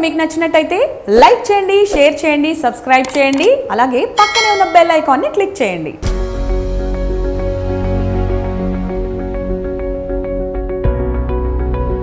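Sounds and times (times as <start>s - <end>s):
instrumental background music: 4.2s - 12.0s.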